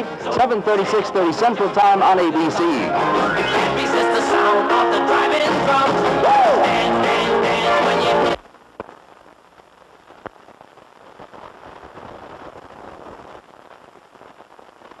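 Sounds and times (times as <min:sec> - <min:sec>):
film soundtrack hiss and crackle: 0:00.0 - 0:15.0
sharp pops: 0:08.4 - 0:15.0.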